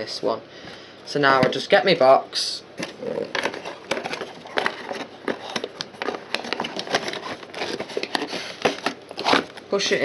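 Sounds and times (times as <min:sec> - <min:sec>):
cardboard and plastic handling: 0:02.8 - 0:10.0.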